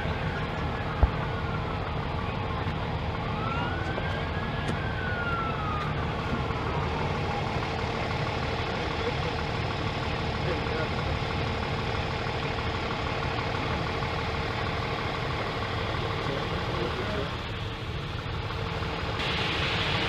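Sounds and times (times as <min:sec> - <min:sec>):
emergency vehicle siren wailing: 0:00.0 - 0:20.0
street traffic rumble: 0:00.0 - 0:20.0.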